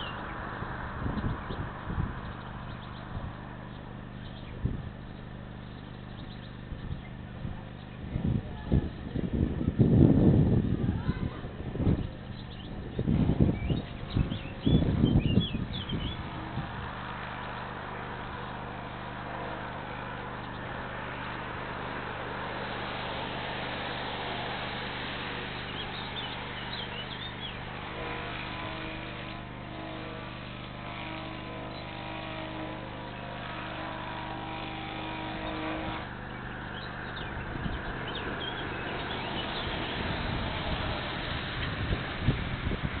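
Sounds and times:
bird chirps: 0:00.0 - 0:08.0, 0:12.0 - 0:16.6, 0:25.6 - 0:28.8, 0:35.3 - 0:40.2
constant low hum: 0:00.0 - 0:43.0
vehicle engine: 0:00.0 - 0:43.0.

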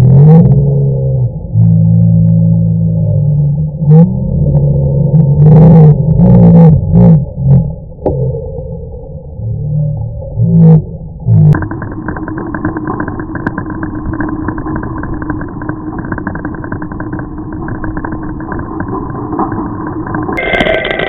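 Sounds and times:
road rumble: 0:00.0 - 0:14.3
constant low hum: 0:00.0 - 0:21.0.

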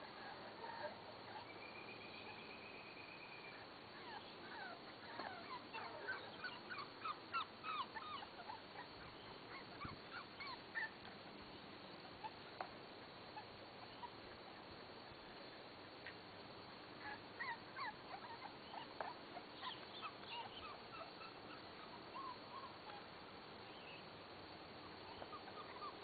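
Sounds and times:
high steady animal tone: 0:17.0 - 0:23.0.

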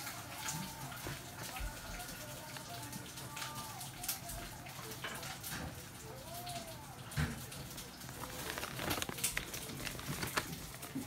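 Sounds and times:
rabbit crunching hay: 0:07.2 - 0:11.0.

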